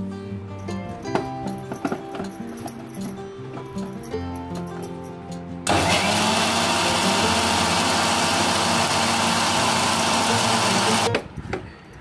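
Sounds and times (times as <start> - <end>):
mixer grinder whirring: 5.7 - 11.1.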